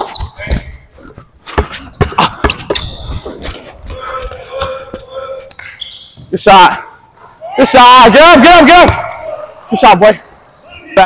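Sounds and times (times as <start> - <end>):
shoe squeaks: 0.0 - 0.5, 1.8 - 6.4.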